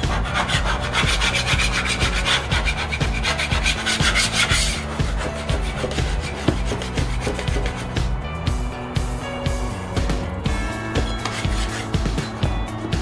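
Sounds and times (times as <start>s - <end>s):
metal putty knife scraping wood: 0.0s - 8.0s, 11.1s - 12.4s.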